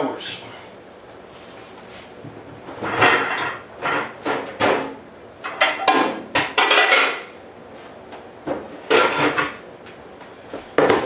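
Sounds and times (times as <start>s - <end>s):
dishes clattering in cabinet: 2.7s - 7.3s, 8.9s - 9.6s.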